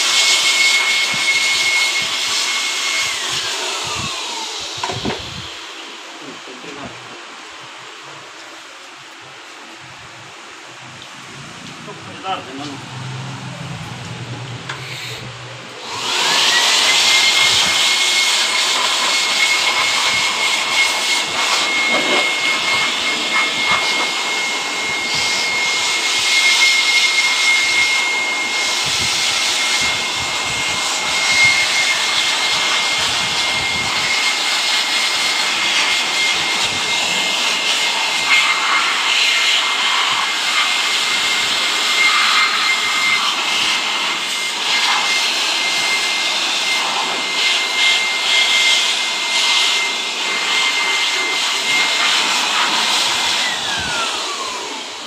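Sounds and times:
air blower motor whine: 0:00.0 - 0:55.0
rush of air: 0:02.9 - 0:06.9, 0:10.8 - 0:26.4.

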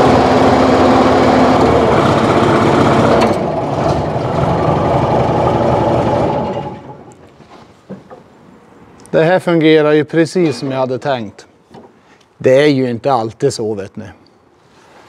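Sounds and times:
hydraulic whine: 0:00.0 - 0:07.2
wheel loader engine under load: 0:00.0 - 0:07.3.

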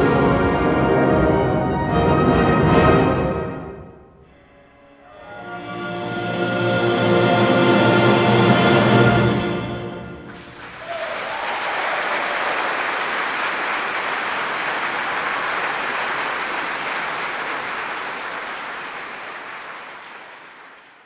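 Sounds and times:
audience applause: 0:10.2 - 0:21.0.

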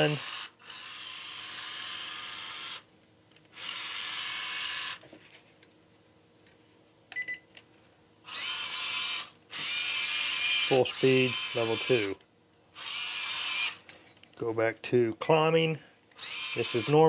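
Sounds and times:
electric motor whining: 0:00.0 - 0:02.9, 0:03.5 - 0:05.0, 0:08.3 - 0:12.2, 0:12.8 - 0:13.8, 0:16.2 - 0:17.0.

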